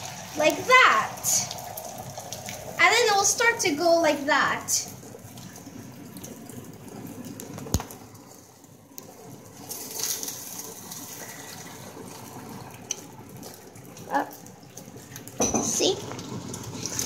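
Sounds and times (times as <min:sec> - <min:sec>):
egg sizzling in hot oil: 0:00.0 - 0:17.0.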